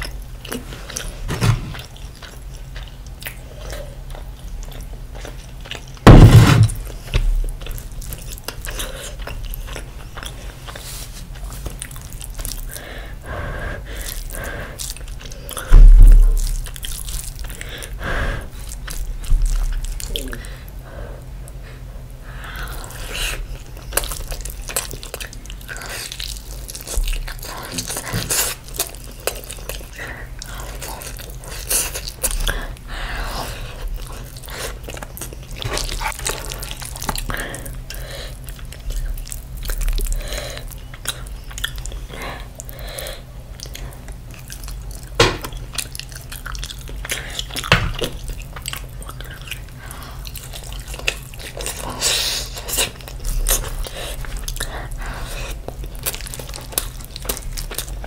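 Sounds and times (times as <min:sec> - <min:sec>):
heavy thumps: 0:06.0 - 0:07.4, 0:15.7 - 0:16.6
wet chewing and lip smacks: 0:22.6 - 0:32.9, 0:33.6 - 0:58.0.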